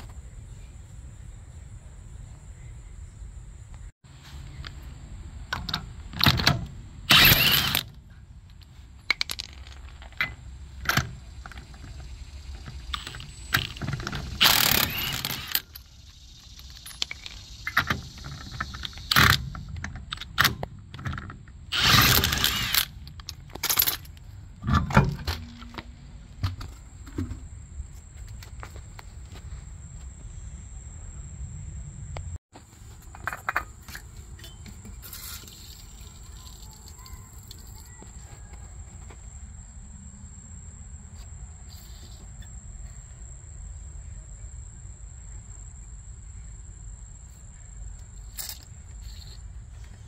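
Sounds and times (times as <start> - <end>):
impact wrench bursts: 7.1 - 7.9, 13.0 - 15.8, 21.7 - 23.0.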